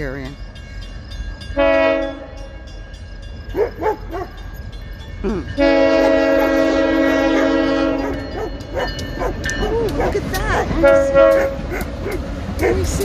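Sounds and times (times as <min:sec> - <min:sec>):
locomotive air horn blast: 0:01.6 - 0:02.4, 0:05.6 - 0:08.2, 0:10.8 - 0:11.6.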